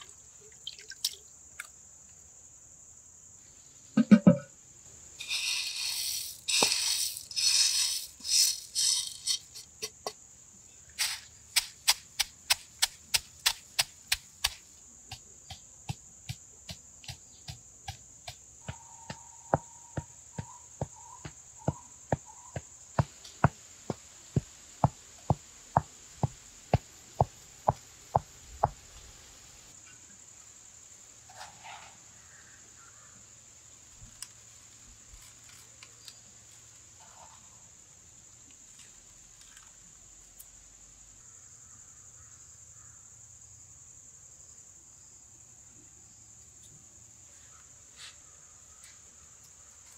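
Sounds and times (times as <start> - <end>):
cricket trill: 0.0 - 49.9
pestle knocking in stone mortar: 4.0 - 4.5
pestle grinding peppercorns: 5.2 - 10.0.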